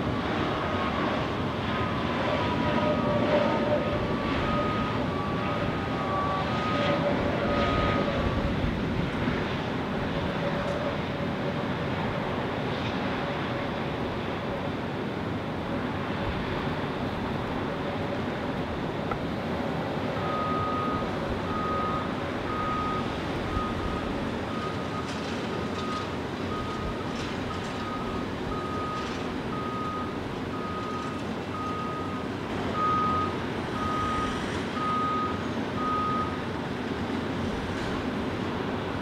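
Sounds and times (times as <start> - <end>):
steady noisy rumble: 0.0 - 39.0
reversing alarm beeping: 2.7 - 8.3, 20.2 - 36.4.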